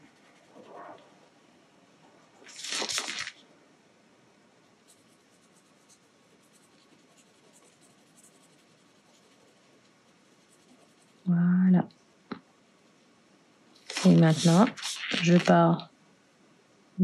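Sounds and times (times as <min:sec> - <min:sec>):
pen scratching on paper: 0:04.8 - 0:11.3, 0:13.9 - 0:15.4.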